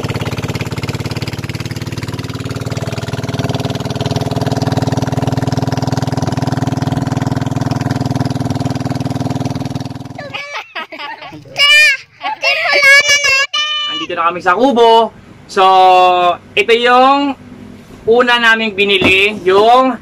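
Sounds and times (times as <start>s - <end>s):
motorboat engine running: 0.0s - 10.4s.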